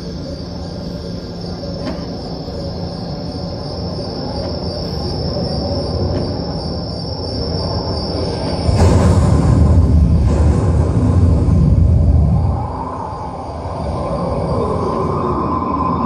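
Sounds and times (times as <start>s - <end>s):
dramatic low rumble: 8.0s - 15.8s.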